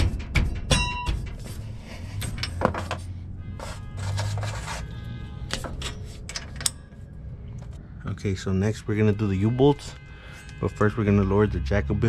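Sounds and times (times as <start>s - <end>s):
metal knocking on metal: 0.0s - 3.1s
ringing metal clink: 0.7s - 1.2s.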